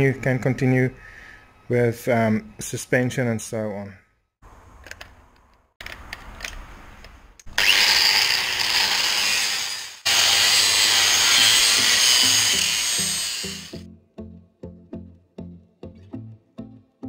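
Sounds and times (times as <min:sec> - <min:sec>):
angle grinder sanding steel: 0:07.6 - 0:13.8.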